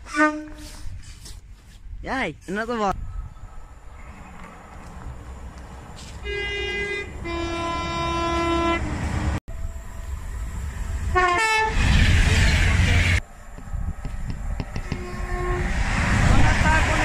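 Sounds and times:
train two-tone horn: 0.0 - 0.8, 6.2 - 9.2, 11.1 - 13.2, 14.8 - 15.8
train rushing past: 7.0 - 17.0.

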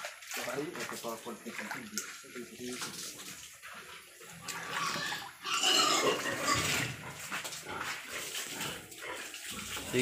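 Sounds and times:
pig squealing: 4.4 - 7.1.

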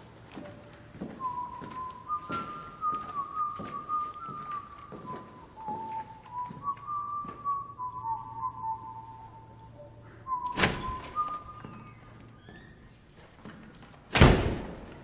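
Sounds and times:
soft footsteps: 0.0 - 9.7, 11.2 - 14.1
person whistling a slow tune: 1.1 - 12.0.

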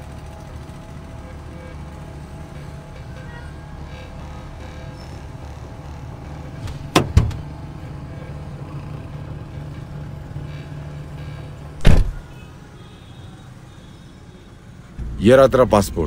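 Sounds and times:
car door latch clunks: 6.6 - 7.5, 11.8 - 12.2.

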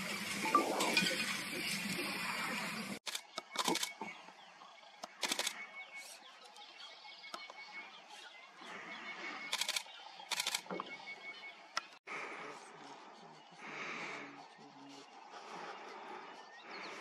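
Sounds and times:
quiet bush ambience: 0.0 - 17.0
camera shutters clicking: 5.0 - 5.6, 9.5 - 10.7.

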